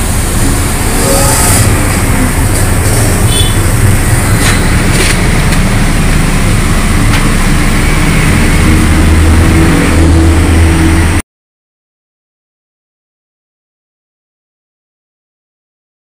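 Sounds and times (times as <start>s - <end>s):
car exhaust running: 0.0s - 11.2s.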